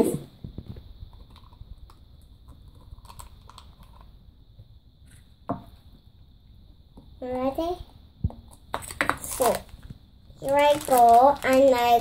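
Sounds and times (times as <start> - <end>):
plastic capsule and wrapper clicks: 1.2 - 4.1, 8.4 - 11.8.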